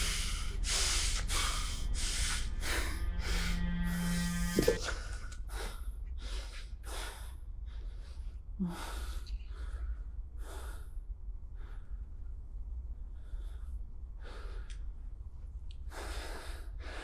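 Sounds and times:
person breathing hard: 0:00.0 - 0:12.4, 0:15.9 - 0:17.0
low steady rumble: 0:00.0 - 0:17.0.

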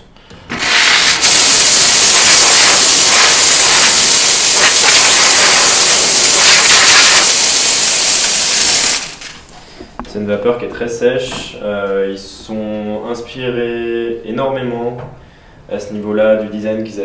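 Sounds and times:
steam wand hissing: 0:00.5 - 0:09.5.

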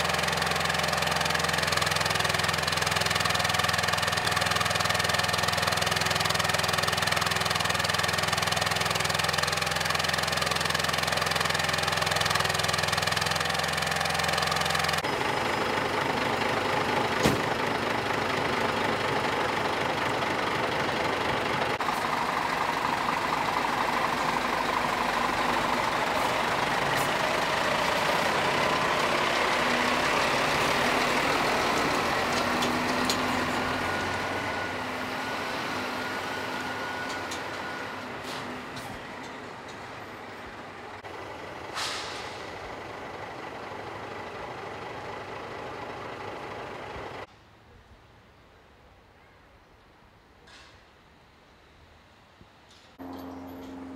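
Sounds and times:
truck diesel engine running: 0:00.0 - 0:47.3, 0:53.0 - 0:53.9
short hiss: 0:41.7 - 0:42.5.

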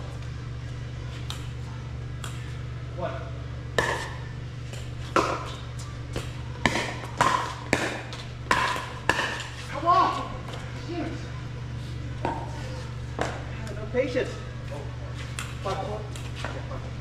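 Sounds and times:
steady low hum: 0:00.0 - 0:17.0
paddles hitting plastic ball: 0:03.8 - 0:09.6.

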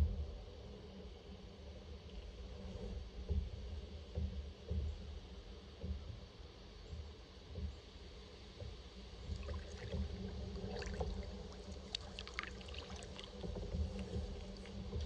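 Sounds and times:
low steady rumble: 0:00.0 - 0:15.0
paddle drips and splashes: 0:09.2 - 0:15.0.

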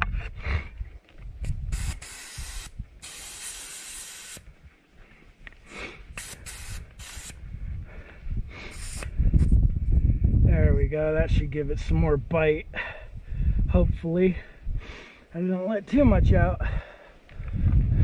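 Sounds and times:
air hissing from tire valve: 0:01.5 - 0:04.4, 0:06.1 - 0:07.4, 0:08.6 - 0:09.6.

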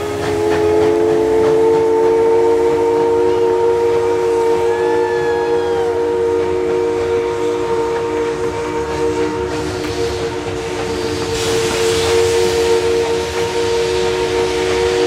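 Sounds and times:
steam hissing: 0:00.0 - 0:15.0
steam locomotive chime whistle: 0:00.0 - 0:15.0.

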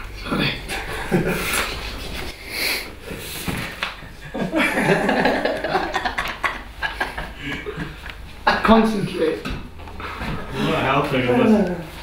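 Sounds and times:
man laughing: 0:00.7 - 0:02.1, 0:04.2 - 0:08.0.

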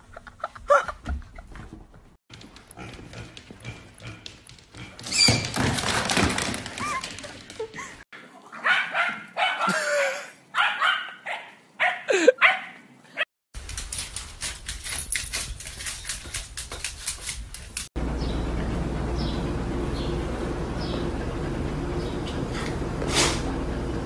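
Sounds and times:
dog barking: 0:08.5 - 0:09.8, 0:10.5 - 0:12.8
rustling and clicking: 0:13.6 - 0:17.9.

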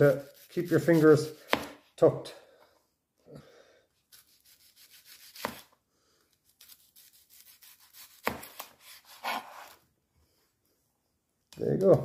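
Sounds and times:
knife slicing onion: 0:00.0 - 0:02.0, 0:04.1 - 0:05.8, 0:06.4 - 0:09.8.

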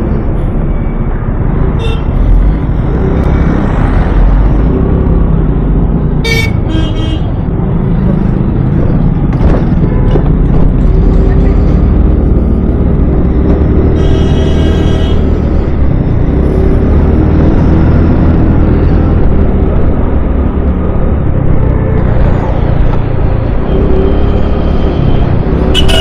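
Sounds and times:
scooter road noise rumble: 0:00.0 - 0:26.0
vehicle horn toots: 0:25.7 - 0:26.0.

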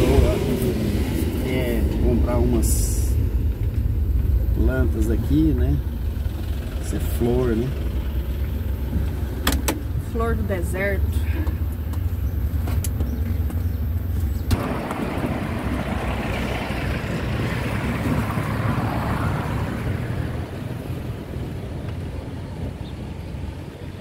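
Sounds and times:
engine rumble: 0:00.0 - 0:24.0
rushing road noise: 0:00.0 - 0:24.0.

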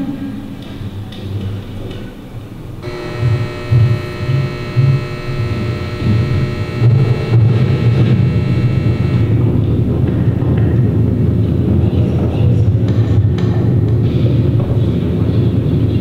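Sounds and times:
steady high tones: 0:02.8 - 0:09.4
low pulsing electronic hum: 0:02.8 - 0:09.7.

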